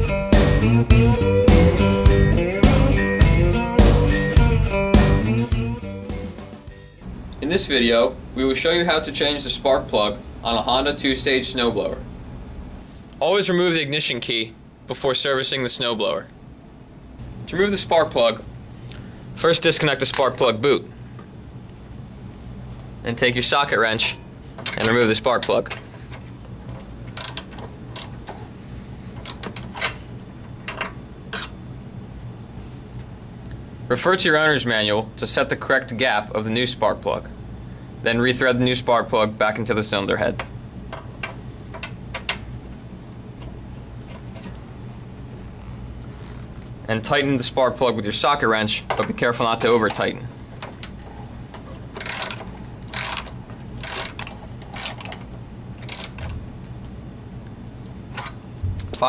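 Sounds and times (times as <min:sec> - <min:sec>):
ratchet wrench clicking: 0:27.2 - 0:28.2, 0:52.0 - 0:55.2, 0:55.8 - 0:56.4.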